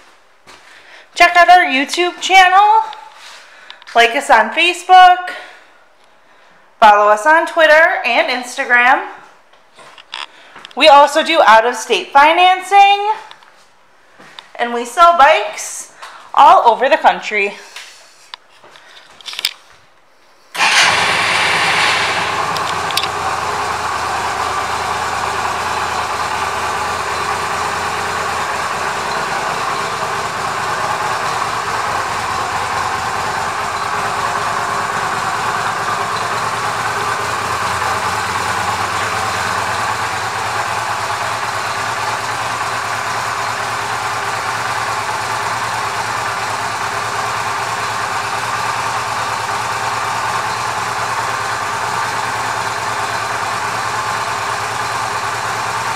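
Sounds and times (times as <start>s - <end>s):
motorcycle engine starting and idling: 20.5s - 55.9s.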